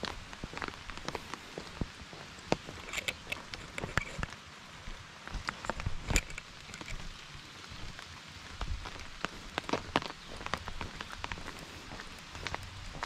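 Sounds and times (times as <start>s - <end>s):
rain falling: 0.0s - 13.0s
raindrops tapping: 0.0s - 13.0s.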